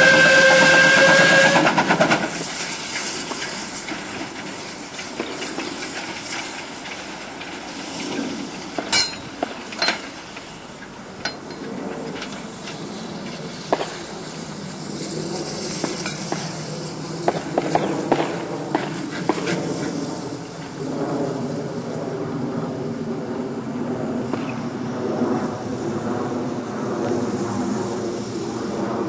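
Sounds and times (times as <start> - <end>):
wheels clicking on track: 0.0 - 14.0
diesel locomotive running: 0.0 - 20.8.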